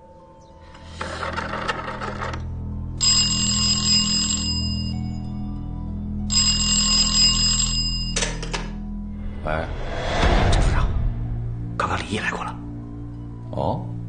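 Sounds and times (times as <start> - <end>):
telephone bell ringing: 3.0 - 5.5, 6.3 - 8.7
low music drone: 4.5 - 14.0.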